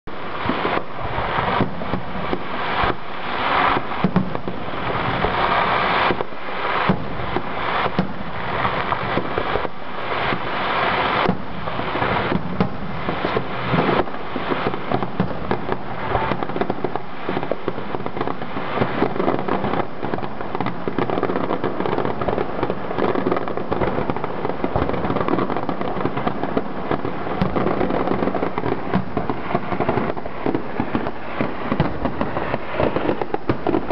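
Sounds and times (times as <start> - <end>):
fireworks bangs and crackles: 0.1 - 33.9.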